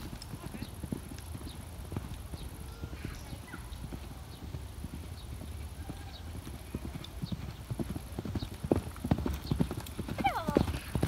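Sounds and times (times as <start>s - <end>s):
horse hooves on sand: 0.0s - 11.0s.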